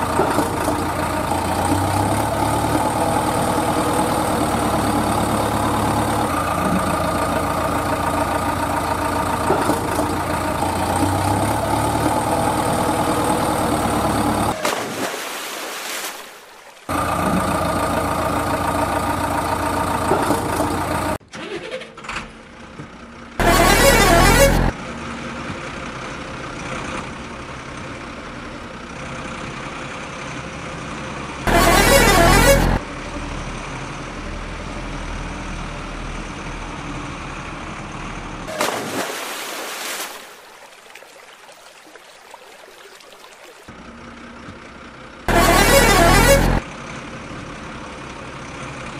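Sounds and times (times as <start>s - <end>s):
vehicle engine running: 0.0s - 14.6s, 16.9s - 21.2s, 22.2s - 38.6s, 43.7s - 48.9s
vehicle horn blasts: 23.4s - 24.7s, 31.5s - 32.8s, 45.3s - 46.6s.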